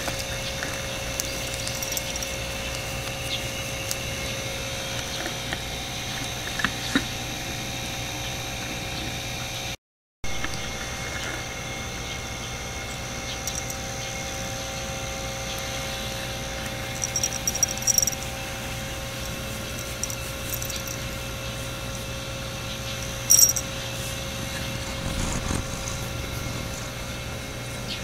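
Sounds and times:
steady mechanical hum: 0.0 - 28.0
cat fur brushing microphone: 24.0 - 27.4.

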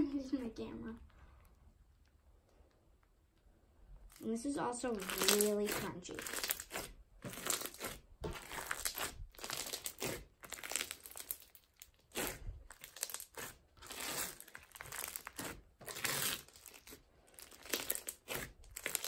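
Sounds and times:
foam bead slime crunching: 4.1 - 19.0.

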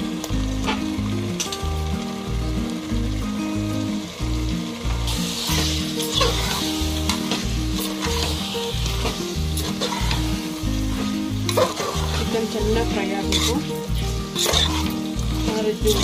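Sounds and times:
background music with bass line: 0.0 - 16.0
chicken sizzling in hot oil: 0.0 - 16.0
metal spatula scraping: 5.4 - 16.0.

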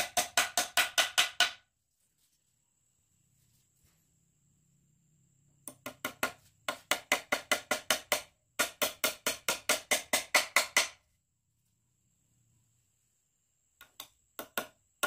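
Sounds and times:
rapid sharp knocks on wood: 0.0 - 1.6, 5.7 - 11.0, 13.8 - 14.8.

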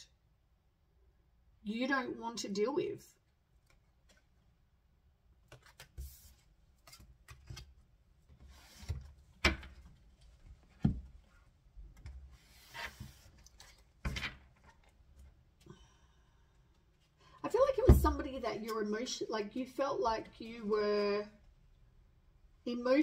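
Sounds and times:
cards sliding on wooden table: 8.4 - 9.1, 12.4 - 13.4.

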